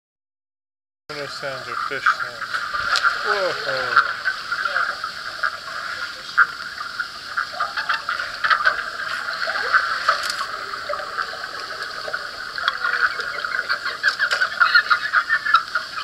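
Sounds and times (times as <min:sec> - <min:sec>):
underwater clicks and pulses: 0:08.2 - 0:14.6.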